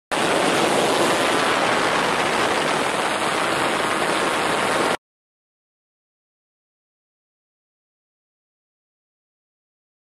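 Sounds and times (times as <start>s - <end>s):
loud rushing hiss: 0.1s - 5.0s.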